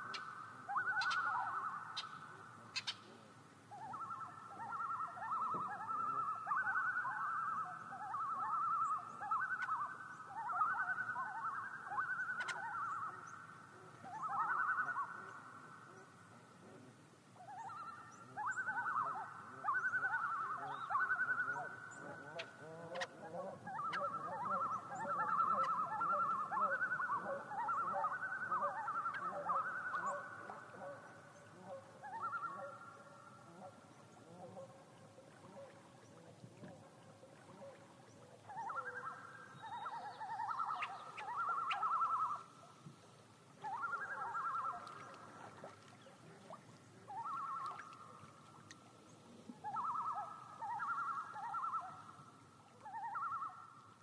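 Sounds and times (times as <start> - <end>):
loons tremolo calls: 14.0 - 15.4, 17.4 - 35.7, 38.5 - 42.7, 43.6 - 48.4, 49.6 - 53.7.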